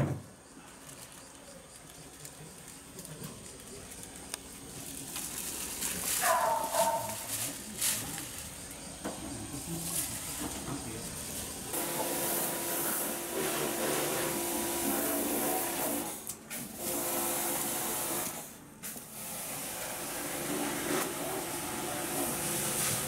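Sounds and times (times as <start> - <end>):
pressure washer motor hum: 7.8 - 23.0
hissing water spray: 11.1 - 23.0.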